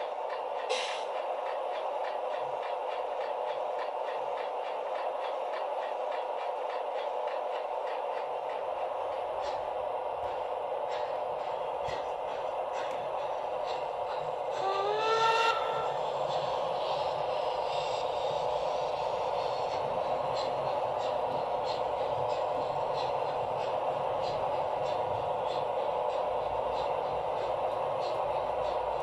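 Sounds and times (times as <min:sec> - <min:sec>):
model train whirring hum: 0:00.0 - 0:29.0.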